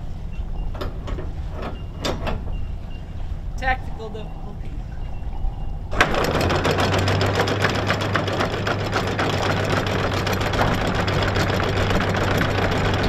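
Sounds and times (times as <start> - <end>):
windlass motor low hum: 0.0 - 13.0
anchor chain rattling: 5.9 - 13.0.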